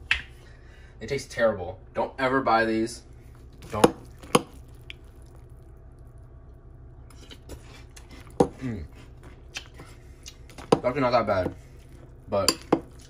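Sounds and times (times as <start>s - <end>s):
chewing mouth sounds: 3.2s - 10.7s.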